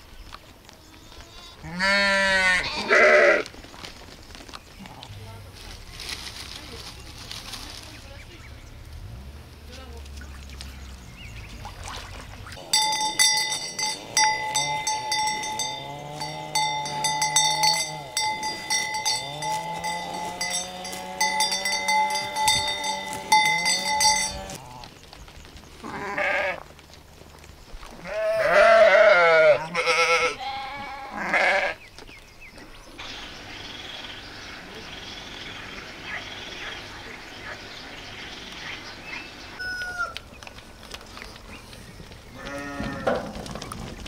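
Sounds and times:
quavering bleats: 1.3 - 3.5, 12.6 - 24.9, 25.8 - 26.7, 28.0 - 31.8, 42.4 - 43.2
livestock bell clanking: 12.6 - 24.7.

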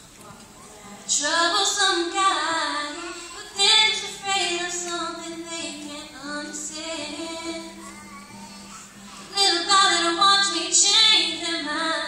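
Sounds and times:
acoustic guitar: 0.0 - 12.0
girl singing into a microphone: 0.6 - 12.0.

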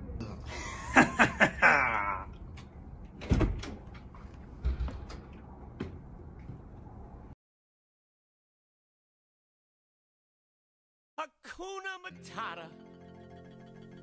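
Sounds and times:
door clunks and knocks: 3.1 - 6.1
man shouting: 11.2 - 12.7.

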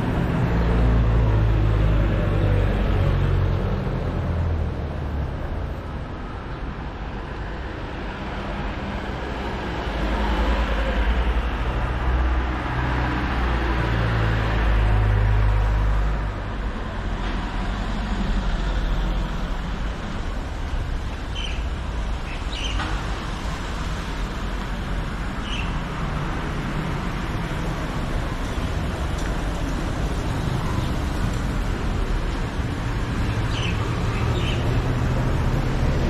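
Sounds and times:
vehicle engine and road noise: 0.0 - 36.0
passing vehicle rumble: 7.4 - 36.0.

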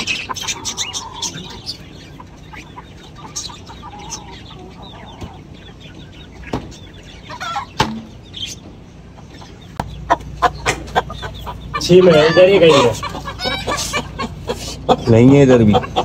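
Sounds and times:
chickens clucking softly: 0.0 - 16.0
sharp knocks: 7.8 - 8.1.

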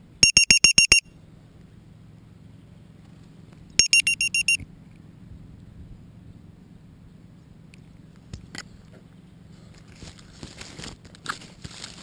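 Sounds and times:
short high-pitched alarm beeps: 0.2 - 1.1, 3.8 - 4.6.

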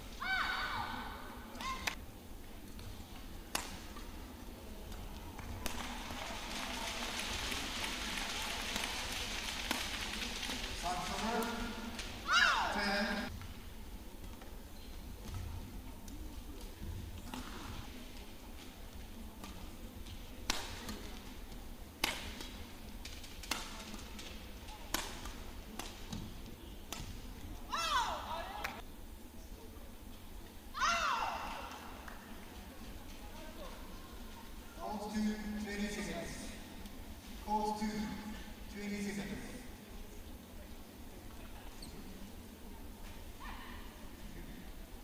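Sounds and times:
arena crowd noise: 0.0 - 45.0
racket hitting shuttlecock: 3.5 - 4.1, 20.4 - 21.2, 22.0 - 26.3.

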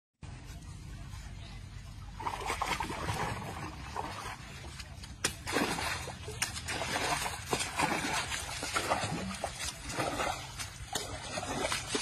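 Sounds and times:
water splashing and trickling: 0.6 - 12.0.

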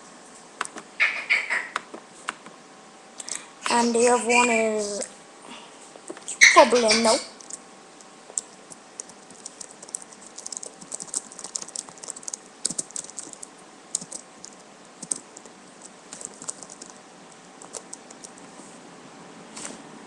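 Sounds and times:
typing on computer keyboard: 7.4 - 7.6, 8.4 - 18.4.

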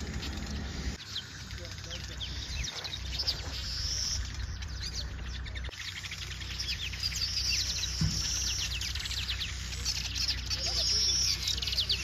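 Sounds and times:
weaver birds chirping: 0.0 - 12.0.

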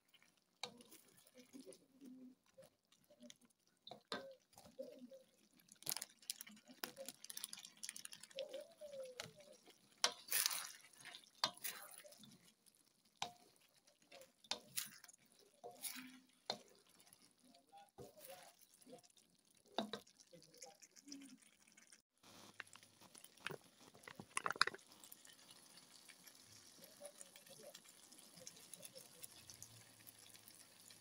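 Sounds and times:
spatula scraping wok: 8.4 - 18.8.

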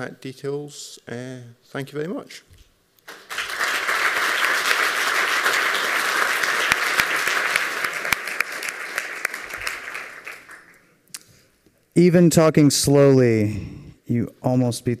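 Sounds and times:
audience applauding: 3.1 - 10.9.

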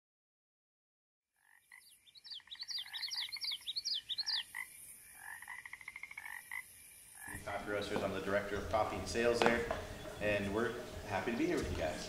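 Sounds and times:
frogs trilling and croaking: 1.4 - 8.2.

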